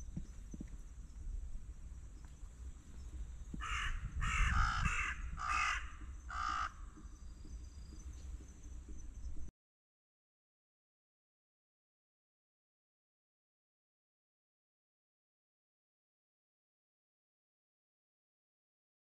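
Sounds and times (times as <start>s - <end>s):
crow cawing: 3.6s - 7.0s.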